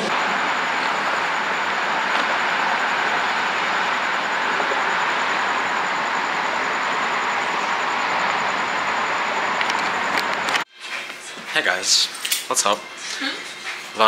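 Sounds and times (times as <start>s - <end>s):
car road noise: 0.0s - 10.7s
rushing wind: 0.0s - 10.7s.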